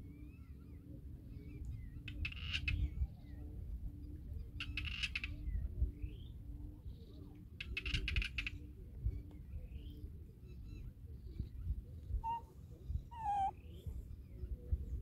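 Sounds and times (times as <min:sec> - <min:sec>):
small bird chirps: 0:12.2 - 0:12.4, 0:13.1 - 0:13.6.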